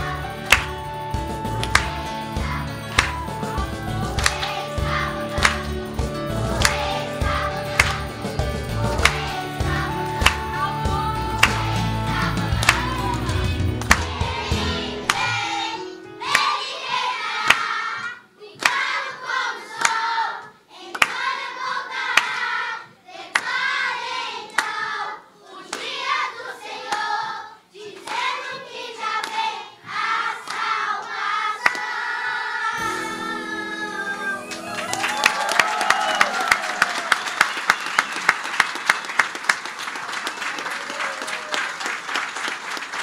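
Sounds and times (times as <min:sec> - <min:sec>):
hand claps: 0:00.0 - 0:00.9, 0:01.5 - 0:04.7, 0:05.3 - 0:05.9, 0:06.5 - 0:07.0, 0:07.7 - 0:09.4, 0:10.2 - 0:10.5, 0:11.4 - 0:11.8, 0:12.5 - 0:13.0, 0:13.8 - 0:14.2, 0:16.3 - 0:16.6, 0:17.4 - 0:17.8, 0:18.6 - 0:19.0, 0:19.7 - 0:20.1, 0:21.0 - 0:21.3, 0:22.1 - 0:22.4, 0:23.3 - 0:23.6, 0:30.4 - 0:30.8, 0:31.6 - 0:31.9, 0:34.5 - 0:43.0
children's choir singing: 0:00.0 - 0:35.0.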